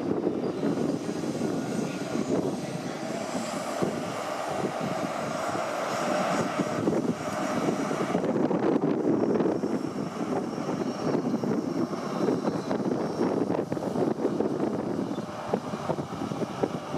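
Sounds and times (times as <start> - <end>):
diesel engine drone: 0.0 - 16.9
thin steady whine: 0.0 - 16.9.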